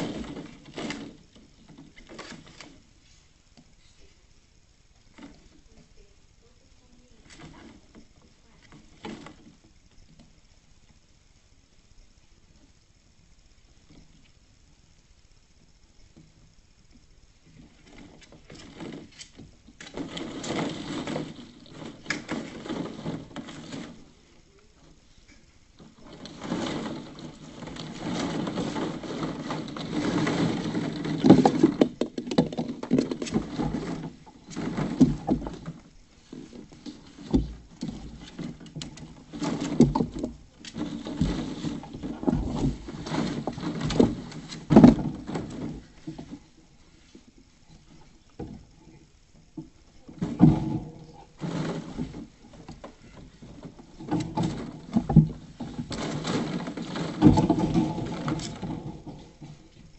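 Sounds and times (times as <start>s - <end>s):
plastic balls clattering: 0.0s - 2.8s, 17.5s - 25.0s, 25.8s - 46.6s, 49.8s - 59.9s.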